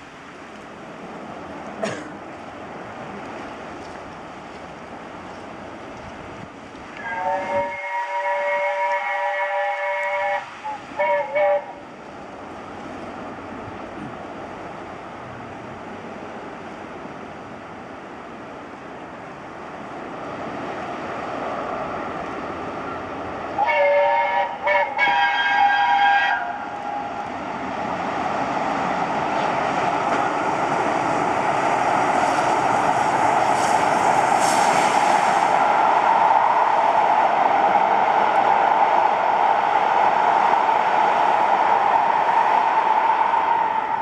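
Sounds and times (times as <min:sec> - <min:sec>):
train running along the line: 0:00.0 - 0:44.0
steam locomotive chime whistle: 0:07.0 - 0:11.8, 0:23.6 - 0:26.7.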